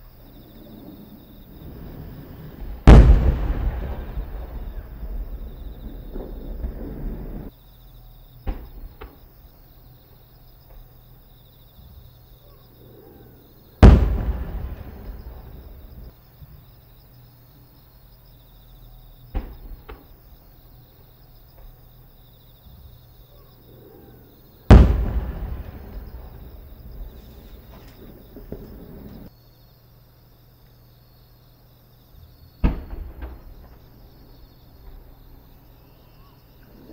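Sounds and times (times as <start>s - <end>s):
firework shells booming: 0.0s - 7.5s, 8.4s - 9.6s, 13.7s - 16.1s, 19.3s - 20.5s, 23.6s - 29.3s, 32.6s - 36.9s
crickets chirring: 0.0s - 36.9s
faint sharp pops: 8.4s - 9.3s, 19.3s - 20.2s, 24.7s - 29.3s, 32.6s - 33.9s.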